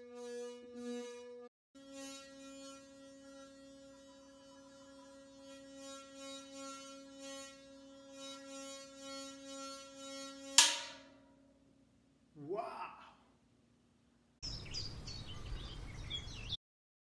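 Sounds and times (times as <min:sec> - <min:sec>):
metal pot ringing hum: 0:07.2 - 0:11.4.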